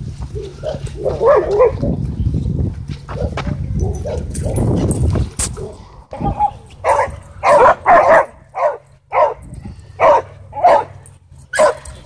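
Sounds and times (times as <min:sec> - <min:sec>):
dog barking: 0:00.6 - 0:01.9, 0:05.6 - 0:09.4, 0:10.0 - 0:12.0.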